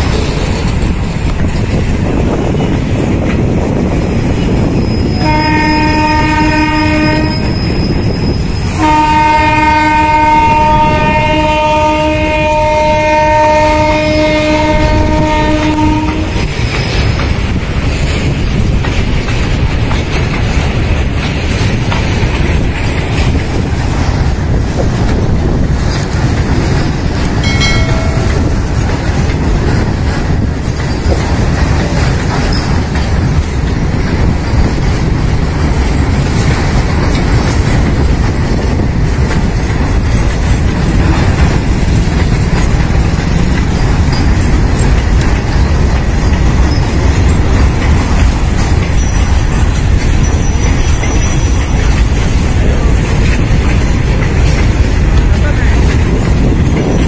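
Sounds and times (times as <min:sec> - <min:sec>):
train wheels clacking over rails: 0:00.0 - 0:57.0
train horn blasts: 0:05.2 - 0:07.8, 0:08.7 - 0:16.4.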